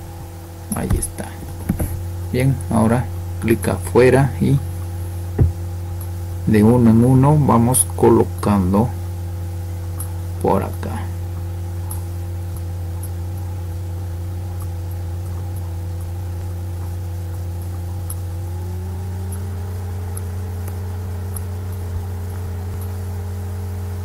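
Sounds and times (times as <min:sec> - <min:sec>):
low machine hum: 0:00.0 - 0:24.0
faint light ticks: 0:09.9 - 0:10.5, 0:20.1 - 0:23.0.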